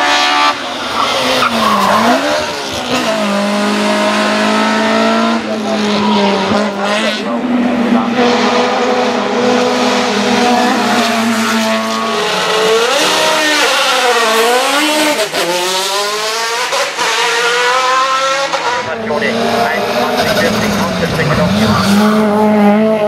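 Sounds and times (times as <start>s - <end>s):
racing car engine revving: 0.0s - 23.0s.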